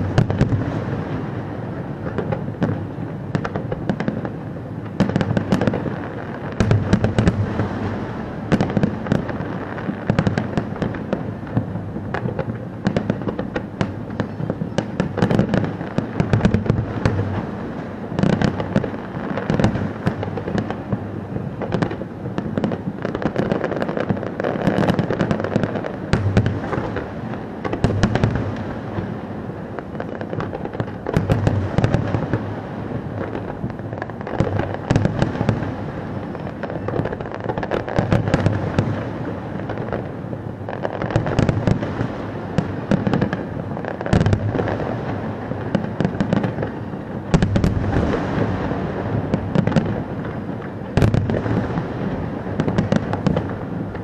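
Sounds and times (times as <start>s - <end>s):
fireworks booming and cracking: 0.0s - 54.0s.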